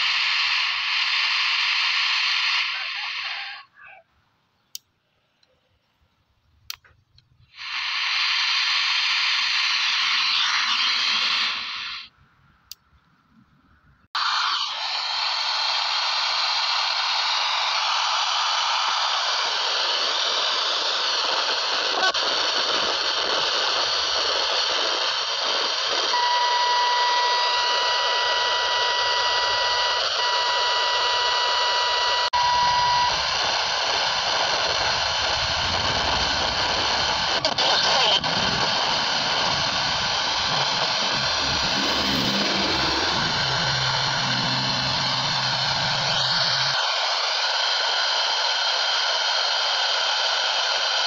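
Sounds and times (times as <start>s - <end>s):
radio static hiss: 0.0s - 4.1s, 7.4s - 12.1s, 17.2s - 51.0s
steady whistle: 7.8s - 12.1s, 26.1s - 33.8s, 39.4s - 46.8s
low rumble: 39.2s - 46.8s.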